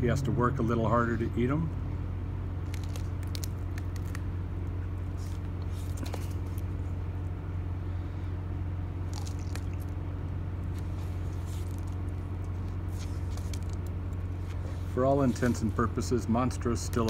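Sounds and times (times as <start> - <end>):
low hum: 0.0 - 17.0
tortoise biting cactus pad: 2.6 - 6.9, 9.0 - 16.0.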